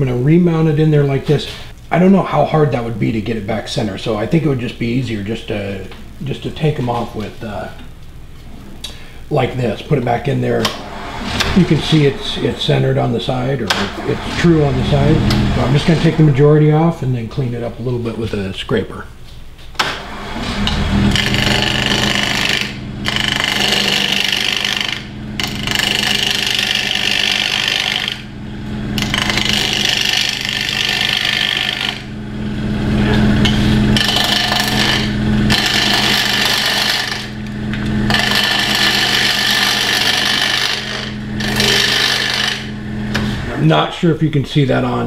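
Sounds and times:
lathe motor humming: 0:10.5 - 0:16.9, 0:19.8 - 0:43.7
turning tool cutting wood: 0:10.5 - 0:16.9, 0:19.8 - 0:43.7.

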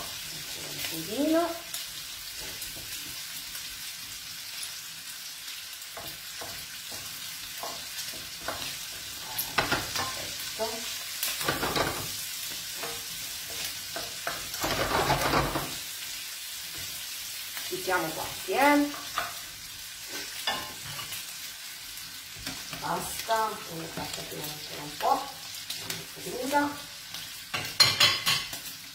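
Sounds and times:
meat sizzling in a frying pan: 0:00.0 - 0:28.9
wooden spoon scraping a pan: 0:06.0 - 0:15.9, 0:17.9 - 0:21.2.

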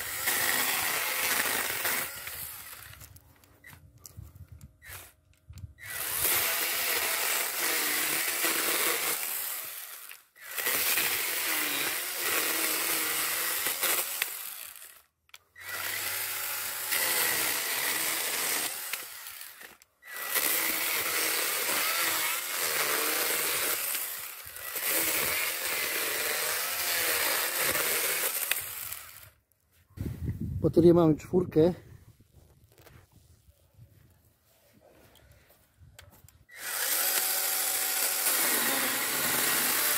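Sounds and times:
chainsaw cutting wood: 0:00.0 - 0:03.2, 0:04.8 - 0:05.2, 0:05.8 - 0:29.4, 0:36.5 - 0:39.9.

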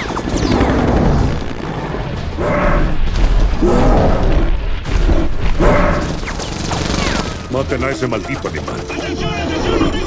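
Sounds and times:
deep booming rumbles: 0:00.7 - 0:06.2
giant ape growling: 0:02.4 - 0:04.6.

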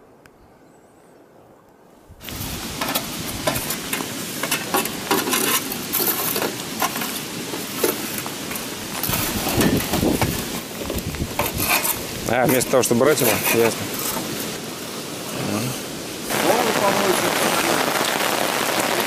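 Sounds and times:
shovels scraping on coals and stones: 0:02.2 - 0:16.7
embers crackling: 0:02.2 - 0:19.0.

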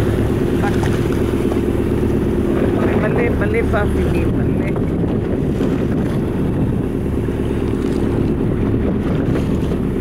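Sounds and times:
boat engine drone: 0:00.0 - 0:10.0
wind on microphone: 0:00.0 - 0:10.0.

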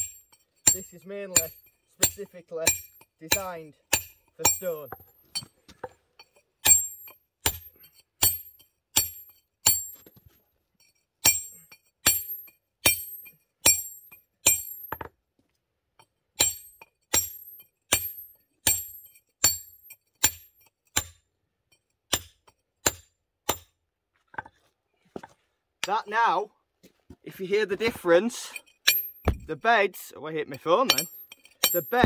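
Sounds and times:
hammer striking steel chisel: 0:00.0 - 0:10.1, 0:10.9 - 0:15.0, 0:16.4 - 0:23.8, 0:28.5 - 0:29.6, 0:30.5 - 0:32.0.

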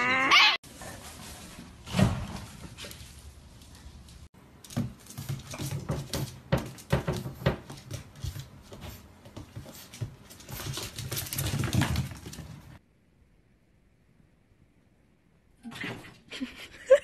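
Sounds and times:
animals scuffling on tiled floor: 0:00.7 - 0:12.8.

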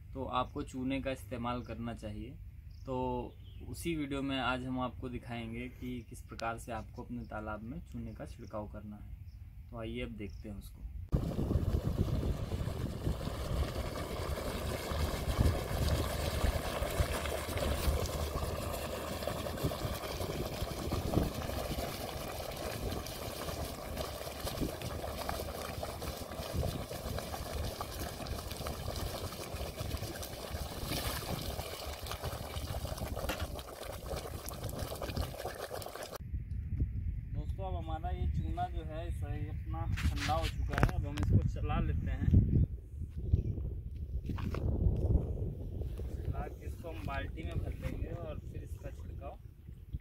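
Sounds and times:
lime bubbling and crackling in water: 0:11.1 - 0:36.2.

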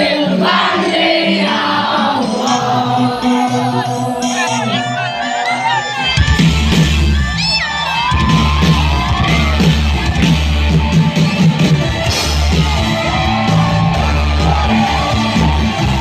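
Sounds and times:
crowd cheering and whooping: 0:02.0 - 0:16.0
live band music: 0:02.4 - 0:16.0
heavy bass beat: 0:08.0 - 0:16.0.

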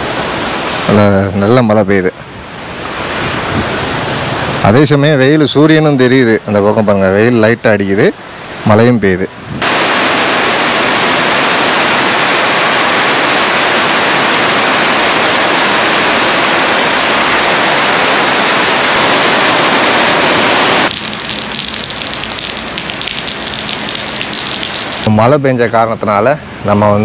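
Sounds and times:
heavy rain pouring: 0:00.0 - 0:25.4
patter of raindrops: 0:20.8 - 0:25.2.

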